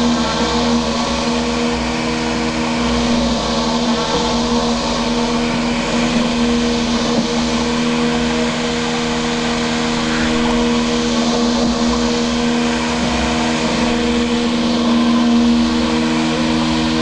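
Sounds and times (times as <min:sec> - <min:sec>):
robotic lawn mower motor hum: 0:00.0 - 0:17.0.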